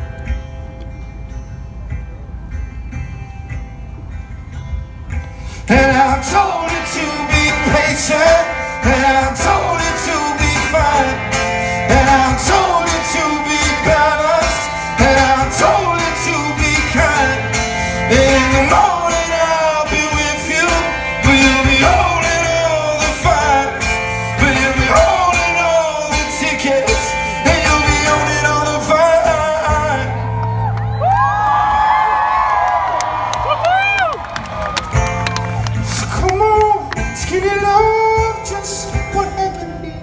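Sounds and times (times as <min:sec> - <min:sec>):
strummed guitar: 0:00.0 - 0:31.0, 0:34.4 - 0:40.0
man singing: 0:05.6 - 0:30.4, 0:35.9 - 0:40.0.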